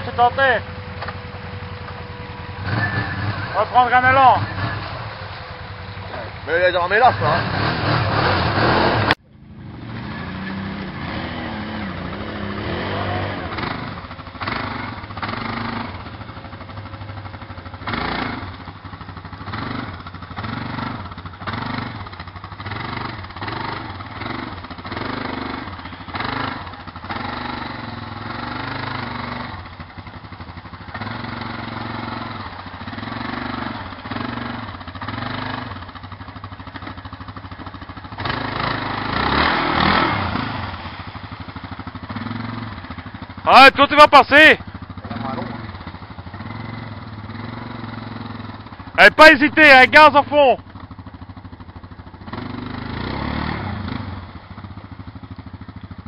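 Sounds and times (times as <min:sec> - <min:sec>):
quad bike engine revving: 0:00.0 - 0:56.0.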